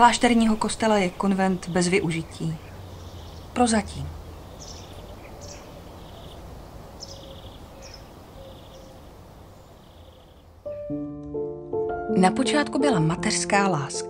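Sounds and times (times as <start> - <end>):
small birds chirping: 0.0 - 10.9.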